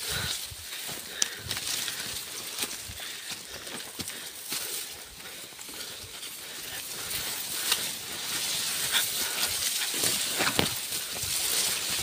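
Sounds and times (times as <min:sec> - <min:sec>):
dry grass rustling: 0:00.0 - 0:12.0
stems snapping: 0:00.9 - 0:04.1, 0:08.8 - 0:12.0.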